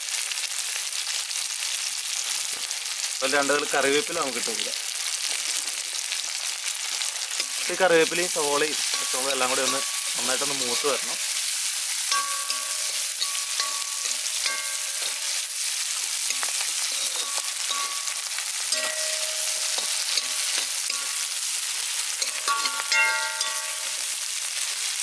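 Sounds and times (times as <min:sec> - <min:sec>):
vegetables sizzling in hot oil: 0:00.0 - 0:25.0
pan ringing metallically: 0:08.6 - 0:11.3, 0:12.0 - 0:24.5
metal spoon scraping a wok: 0:08.8 - 0:11.4, 0:12.0 - 0:24.8.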